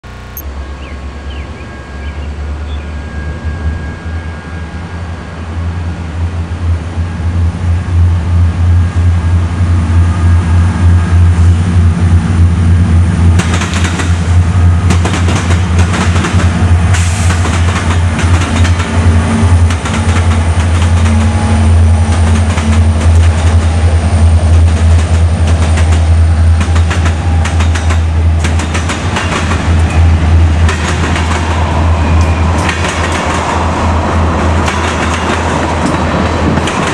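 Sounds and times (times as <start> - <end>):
diesel locomotive engine drone: 0.0 - 36.9
train wheels banging over crossing: 13.3 - 33.7, 34.3 - 36.9.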